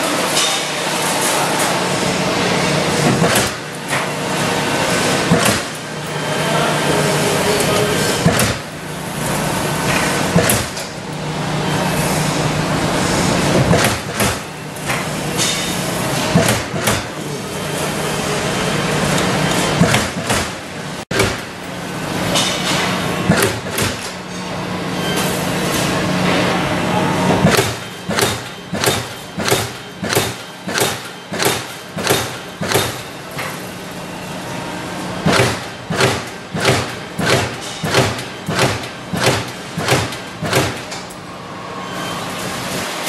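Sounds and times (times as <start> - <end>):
punch press thumping steel sheet: 19.7 - 21.7, 22.3 - 24.2, 27.4 - 33.2, 35.2 - 41.1.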